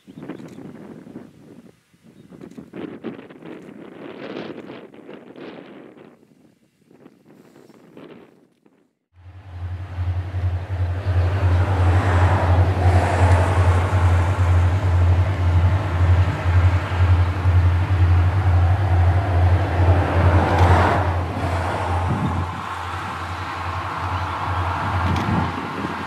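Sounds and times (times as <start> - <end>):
diesel locomotive engines throbbing: 9.2 - 26.0.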